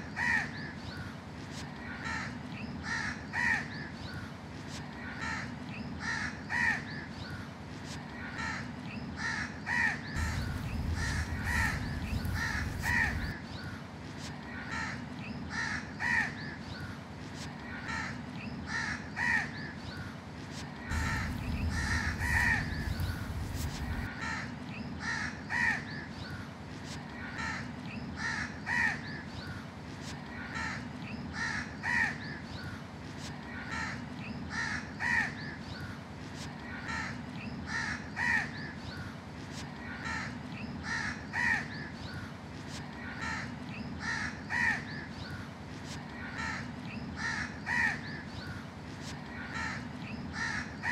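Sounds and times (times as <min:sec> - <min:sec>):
crows cawing: 0:00.2 - 0:00.5, 0:02.0 - 0:03.7, 0:05.1 - 0:06.9, 0:08.2 - 0:13.4, 0:14.6 - 0:16.4, 0:17.7 - 0:19.5, 0:20.9 - 0:25.8, 0:27.3 - 0:29.0, 0:30.4 - 0:32.2, 0:33.6 - 0:35.4, 0:36.7 - 0:38.5, 0:39.8 - 0:41.7, 0:43.1 - 0:44.9, 0:46.2 - 0:48.1, 0:49.3 - 0:50.9.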